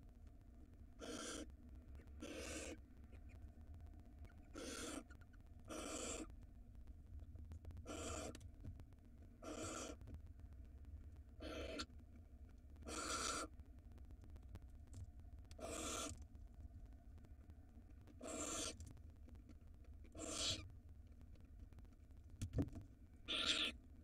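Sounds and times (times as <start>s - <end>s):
owl raspy hissing calls: 1.0s - 1.5s, 2.2s - 2.8s, 4.5s - 5.1s, 5.7s - 6.3s, 7.9s - 8.3s, 9.4s - 10.0s, 11.4s - 11.9s, 12.9s - 13.5s, 15.6s - 16.1s, 18.2s - 18.8s, 20.1s - 20.6s, 23.3s - 23.8s.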